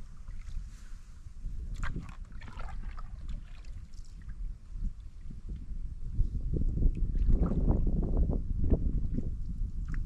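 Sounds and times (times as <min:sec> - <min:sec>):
wind rumbling on microphone: 0:00.0 - 0:10.0
paddle splashes and knocks: 0:01.7 - 0:04.4.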